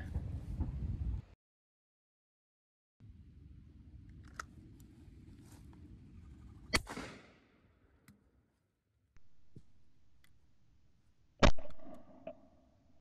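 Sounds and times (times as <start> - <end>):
shotgun shot with echo: 6.7 - 7.4.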